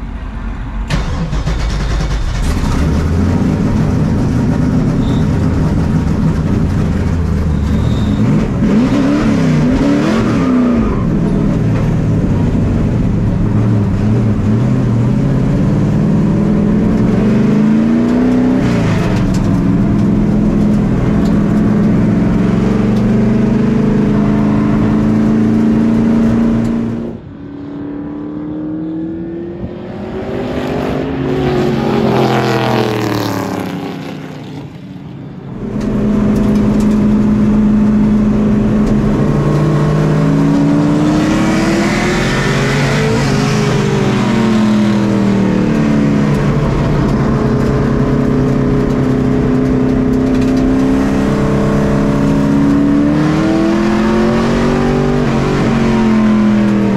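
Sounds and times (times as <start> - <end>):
race car engine from cockpit: 0.0 - 56.9
stock cars passing: 24.2 - 56.9.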